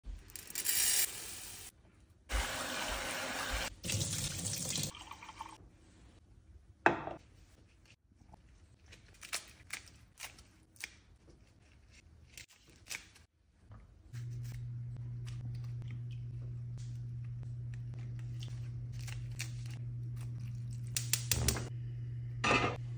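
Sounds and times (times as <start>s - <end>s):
water pouring into a metal pot: 2.7s - 5.6s
steady low hum: 14.1s - 22.9s
scissors snipping leaves: 17.7s - 20.3s.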